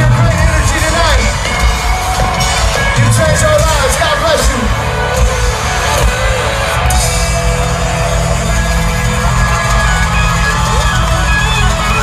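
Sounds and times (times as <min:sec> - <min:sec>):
live country band playing: 0:00.0 - 0:12.0.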